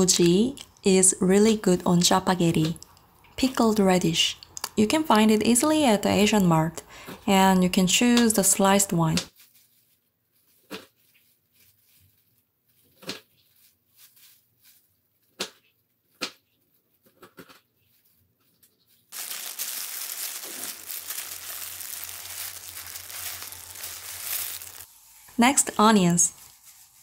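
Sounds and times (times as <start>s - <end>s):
crinkling rustling hiss: 19.1s - 27.0s.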